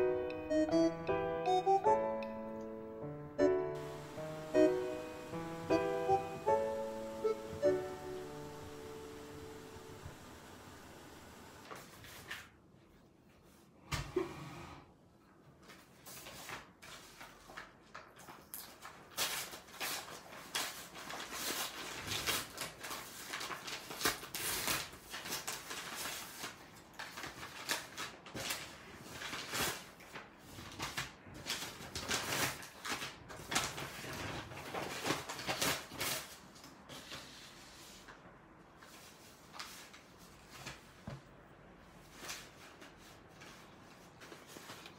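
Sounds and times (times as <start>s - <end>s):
paper rustling and crinkling: 11.6s - 12.6s, 15.5s - 41.3s, 41.9s - 44.9s.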